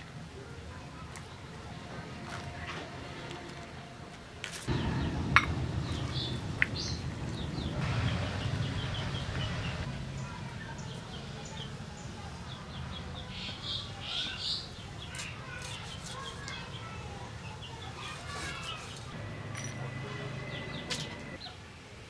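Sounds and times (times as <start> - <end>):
small birds chirping: 4.7 - 21.6.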